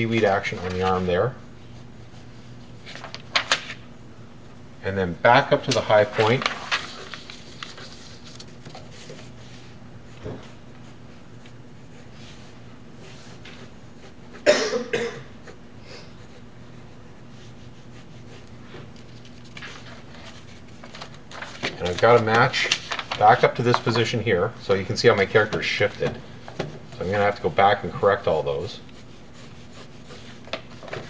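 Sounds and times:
pencil scratching on paper: 8.9s - 14.4s, 15.4s - 18.5s, 28.9s - 30.5s
person coughing: 14.4s - 15.4s.

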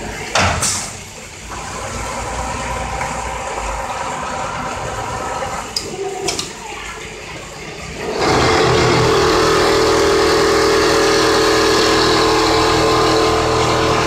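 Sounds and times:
sewing machine humming: 1.5s - 6.3s, 7.8s - 14.0s.

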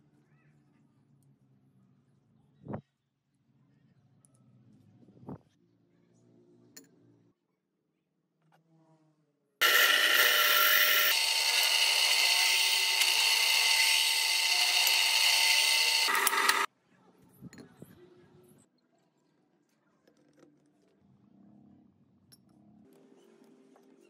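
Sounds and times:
power tool whining: 9.6s - 16.7s.

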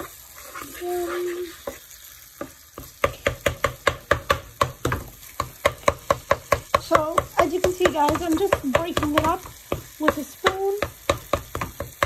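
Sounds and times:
spoon knocking against saucepan: 2.4s - 12.0s.

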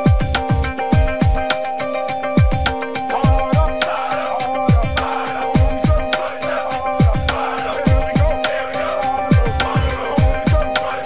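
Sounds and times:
background music with a beat: 0.0s - 11.0s.

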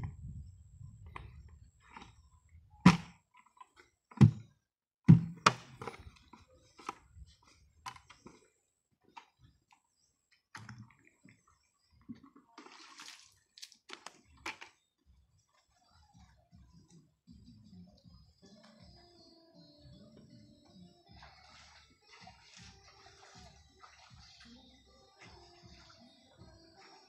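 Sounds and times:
knocks on plastic bucket: 2.9s - 3.1s, 5.1s - 6.0s
water sloshing in bucket: 10.4s - 15.8s, 21.1s - 27.0s.

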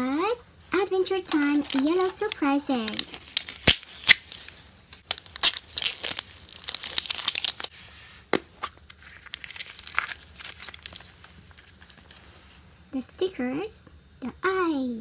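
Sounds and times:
paper rustling and crinkling: 1.3s - 8.0s, 8.6s - 12.6s.

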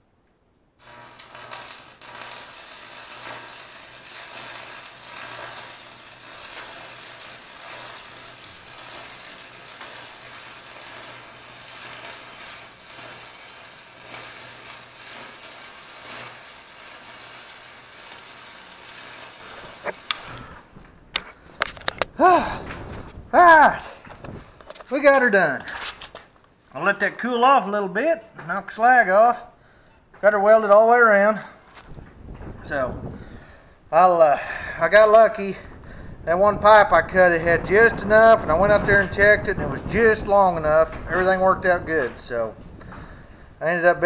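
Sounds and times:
welding arc crackling: 0.8s - 22.3s, 36.3s - 43.4s.

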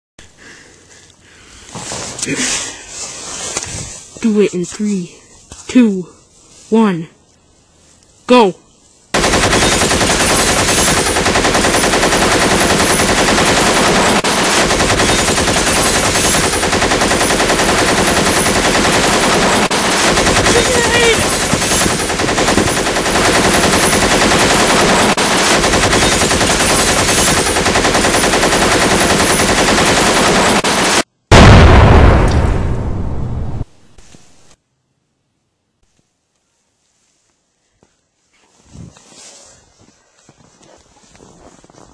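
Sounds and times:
rapid automatic gunfire: 9.2s - 31.5s
grenade explosion with deep rumble: 31.3s - 33.9s.

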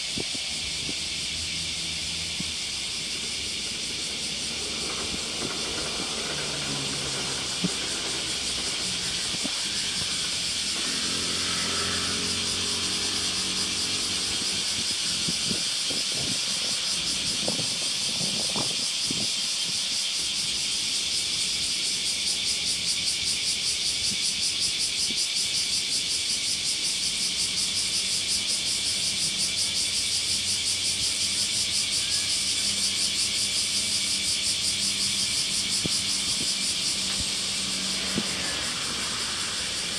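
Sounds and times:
passing vehicle engine drone: 0.0s - 17.6s, 32.2s - 39.9s.

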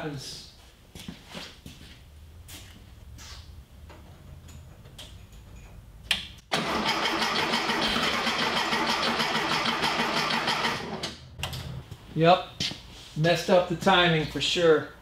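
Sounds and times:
starter cranking engine: 6.5s - 11.7s.

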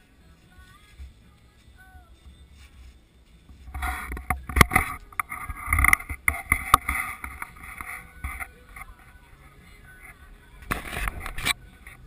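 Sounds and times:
tent fabric rustling: 0.2s - 4.0s.

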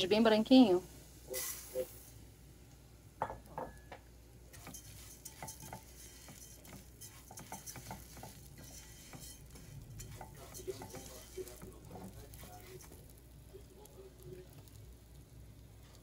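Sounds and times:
rice hissing in hot oil: 0.0s - 3.0s, 4.4s - 16.0s
spoon stirring and scraping rice: 4.5s - 13.4s.

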